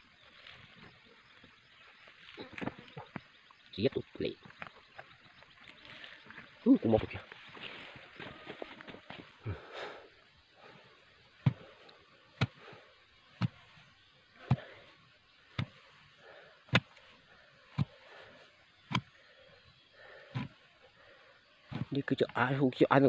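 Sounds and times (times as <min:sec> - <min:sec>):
bamboo pole thudding into earth: 0:13.4 - 0:13.7, 0:15.5 - 0:15.8, 0:16.7 - 0:17.1, 0:18.8 - 0:19.2, 0:21.7 - 0:22.0.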